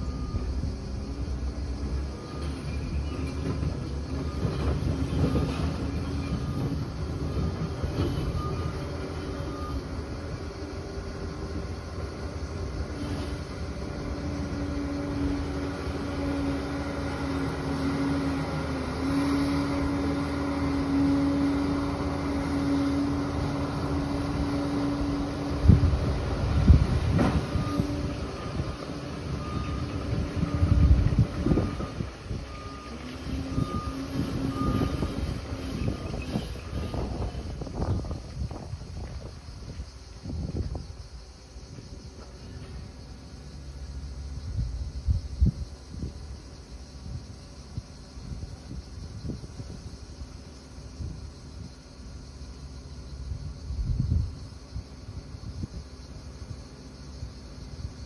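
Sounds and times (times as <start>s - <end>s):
reversing alarm beeping: 0.0s - 0.7s, 2.1s - 10.8s, 27.1s - 38.2s
diesel engine running: 0.0s - 39.6s.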